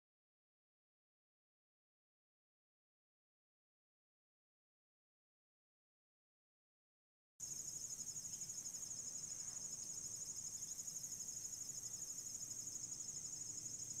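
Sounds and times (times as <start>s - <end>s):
crickets chirping: 7.4s - 14.0s.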